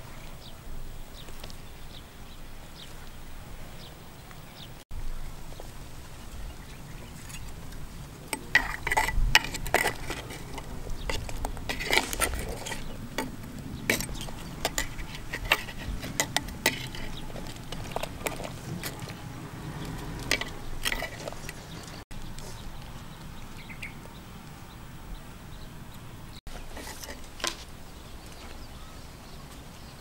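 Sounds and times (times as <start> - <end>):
metal ladle clinking in clay pot: 8.4 - 19.2, 20.3 - 22.0.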